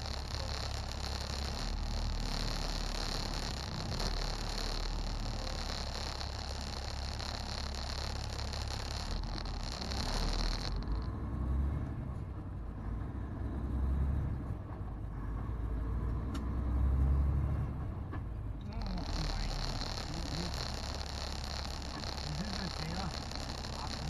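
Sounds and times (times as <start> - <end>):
high hiss: 0.0 - 11.1, 18.7 - 24.0
road noise: 0.0 - 24.0
truck diesel engine rumble: 0.0 - 24.0.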